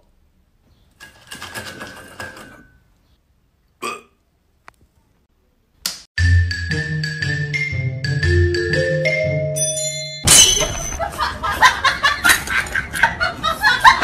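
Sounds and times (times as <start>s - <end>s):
music with mallet percussion: 6.2s - 11.0s.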